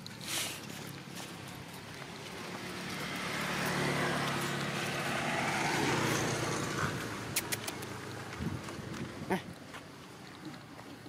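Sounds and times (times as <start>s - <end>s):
vehicle passing by: 0.2s - 9.6s
sharp clicks: 7.3s - 8.0s.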